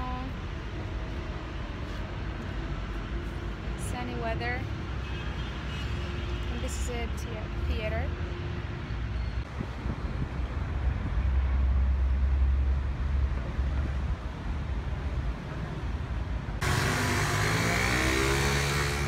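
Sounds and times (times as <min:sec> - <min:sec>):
street traffic: 0:00.0 - 0:19.0
wind rumbling on microphone: 0:09.4 - 0:15.6
vehicle engine speeding up: 0:16.6 - 0:19.0.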